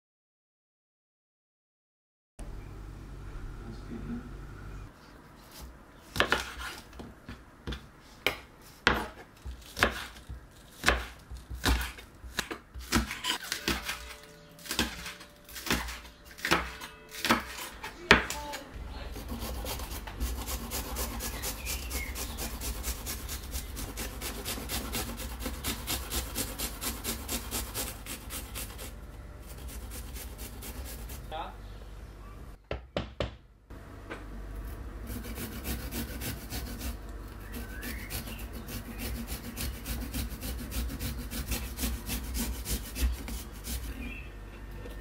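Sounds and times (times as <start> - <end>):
knife chopping on wooden board: 6.1 - 18.4, 37.5 - 43.9
garlic grated on metal grater: 19.2 - 31.3, 35.1 - 44.0.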